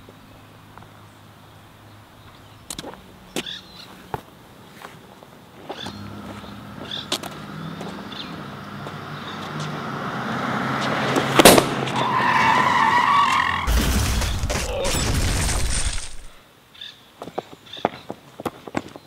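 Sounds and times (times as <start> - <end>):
car engine and road noise: 0.0 - 14.5
tyres squealing: 5.7 - 16.3
heavy engine rumble: 5.9 - 11.5
sharp bang: 13.7 - 16.4.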